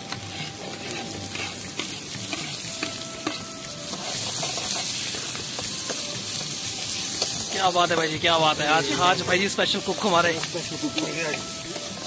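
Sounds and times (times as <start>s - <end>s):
metal ladle scraping wok: 0.0s - 7.5s
onions sizzling in hot oil: 0.0s - 12.0s.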